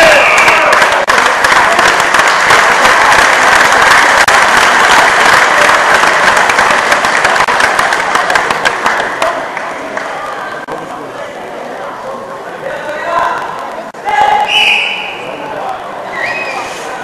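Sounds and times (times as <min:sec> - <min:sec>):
crowd applauding: 0:00.0 - 0:10.7.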